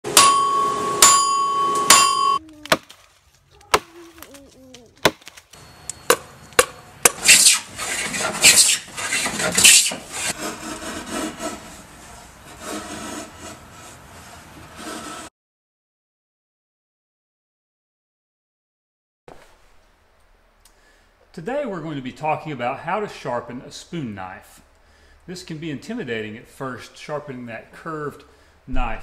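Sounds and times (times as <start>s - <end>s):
hammer blows on anvil: 0.0s - 2.4s
sharp chopping strikes on wood: 2.7s - 3.0s, 5.0s - 5.4s
carving tool scraping wood: 7.1s - 15.3s
wood being cut: 7.1s - 15.3s.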